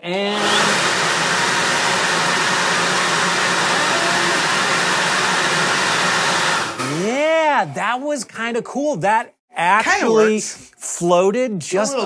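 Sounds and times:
leaf blower running: 0:00.3 - 0:07.0.

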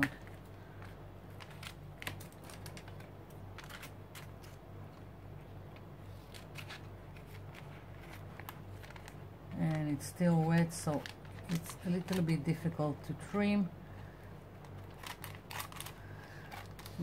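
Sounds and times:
low steady hum: 0:00.0 - 0:17.0
tissue paper crinkling: 0:01.4 - 0:04.6, 0:14.7 - 0:17.0.

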